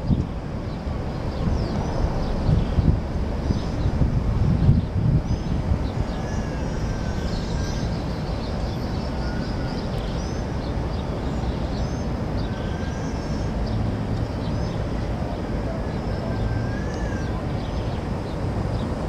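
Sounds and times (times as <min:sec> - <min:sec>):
steady low rumble: 0:00.0 - 0:19.0
small birds chirping: 0:04.6 - 0:19.0.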